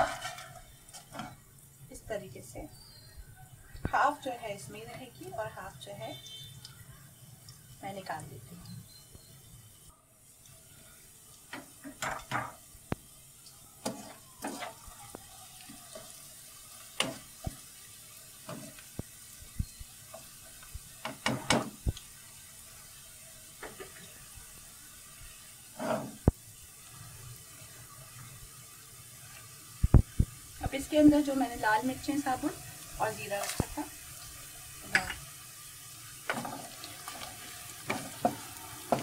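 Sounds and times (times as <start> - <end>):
wire skimmer scraping a wok: 0.0 - 1.4, 25.7 - 26.3, 36.3 - 39.0
oil sizzling: 0.0 - 39.0.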